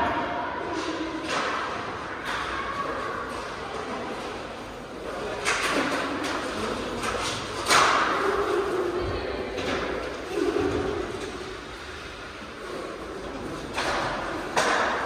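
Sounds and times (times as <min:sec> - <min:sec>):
hockey sticks clacking on puck: 0:00.6 - 0:08.8, 0:12.6 - 0:15.0.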